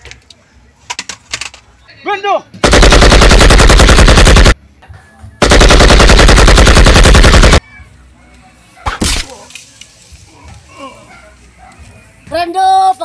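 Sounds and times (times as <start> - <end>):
automatic gunfire bursts: 2.6 - 4.6, 5.4 - 7.6.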